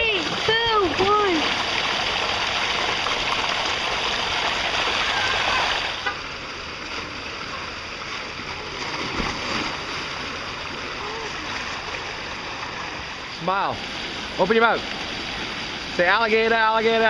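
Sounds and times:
running water: 0:00.0 - 0:17.0
water rushing down slide: 0:00.0 - 0:17.0
splash into pool: 0:08.5 - 0:10.3.

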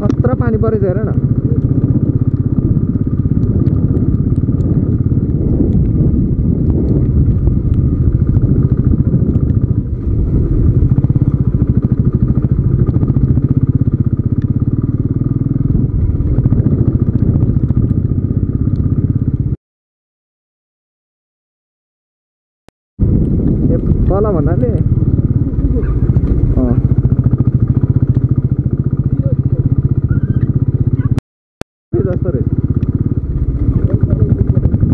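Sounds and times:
motorcycle engine thumping: 0:23.0 - 0:31.2.

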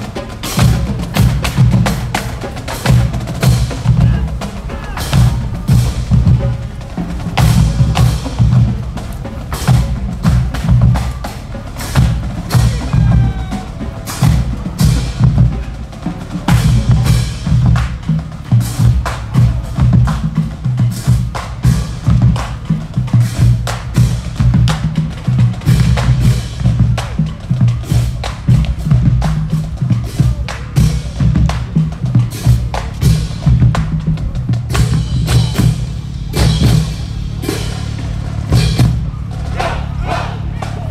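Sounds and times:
bass drums beating: 0:00.0 - 0:40.9.

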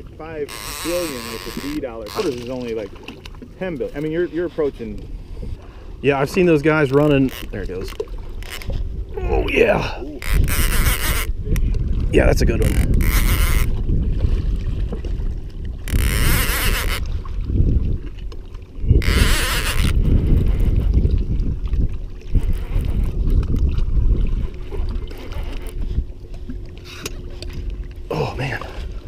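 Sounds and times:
lapping lake water: 0:00.0 - 0:29.0
wind buffeting microphone: 0:00.0 - 0:29.0
fishing reel cranking: 0:00.4 - 0:02.7, 0:06.5 - 0:08.8, 0:10.0 - 0:11.6, 0:12.3 - 0:13.8, 0:15.8 - 0:17.2, 0:18.9 - 0:20.8, 0:22.3 - 0:23.6, 0:25.1 - 0:25.9.

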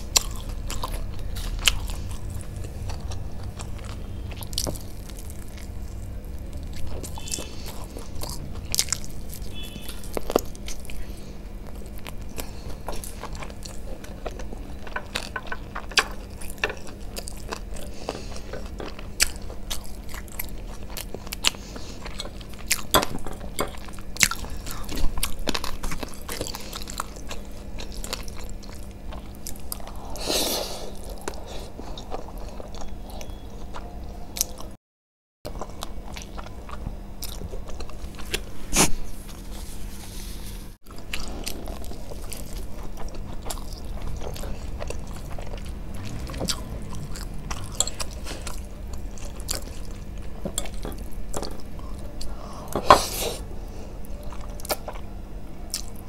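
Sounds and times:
biting and chewing food: 0:00.0 - 0:34.8, 0:35.5 - 0:56.0.

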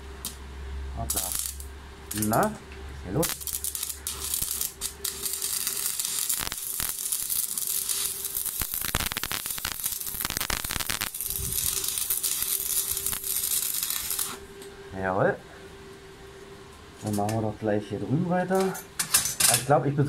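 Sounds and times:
welding arc crackling: 0:00.0 - 0:14.6
faint steady hum: 0:00.0 - 0:20.0.

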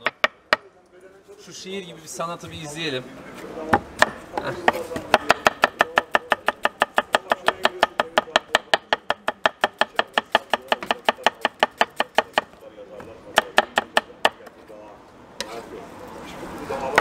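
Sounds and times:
knife chopping on a board: 0:03.7 - 0:12.6, 0:13.4 - 0:14.5.

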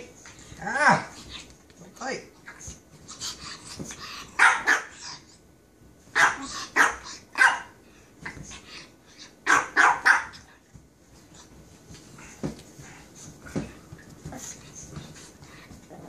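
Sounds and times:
dog barking in play: 0:04.3 - 0:05.0, 0:06.1 - 0:07.8, 0:09.4 - 0:10.5.

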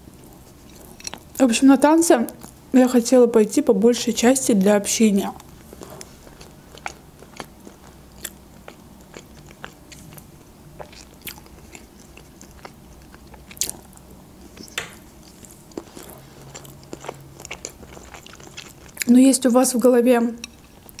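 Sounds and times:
person chewing: 0:00.2 - 0:01.4, 0:05.4 - 0:19.1, 0:20.4 - 0:21.0.

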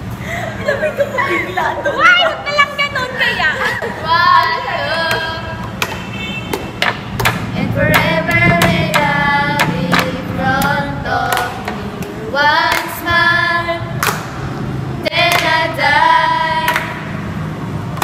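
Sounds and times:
women singing in unison: 0:03.8 - 0:05.6, 0:07.5 - 0:14.1, 0:15.0 - 0:17.2
sharp handclaps: 0:05.8 - 0:10.1, 0:14.0 - 0:14.4, 0:15.3 - 0:15.6, 0:16.6 - 0:17.0.

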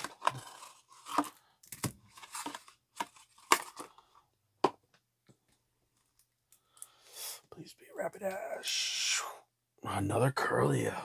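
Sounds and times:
card packaging crinkling: 0:00.0 - 0:04.1.

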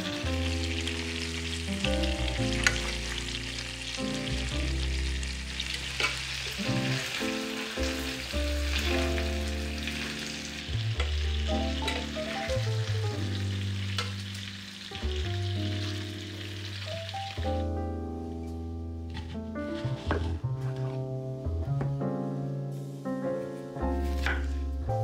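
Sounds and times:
chicken sizzling in a frying pan: 0:00.0 - 0:17.7
background music with low notes: 0:00.0 - 0:25.0.

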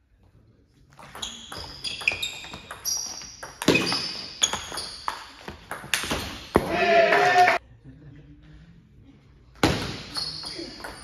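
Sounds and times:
table tennis ball hits: 0:01.0 - 0:06.8.

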